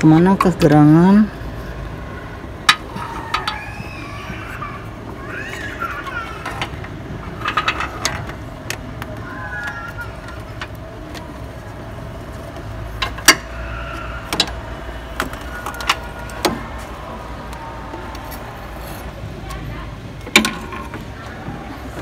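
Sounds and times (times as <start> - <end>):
clicks and knocks of car parts: 2.6 - 3.7, 6.3 - 11.7, 12.3 - 13.6, 14.2 - 19.6, 20.2 - 22.0.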